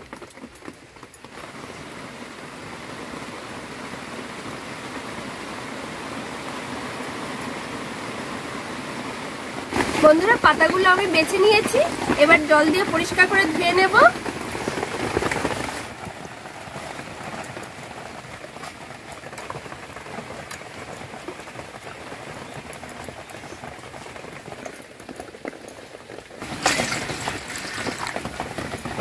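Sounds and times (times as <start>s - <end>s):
water splashing in a bowl: 26.4s - 28.4s.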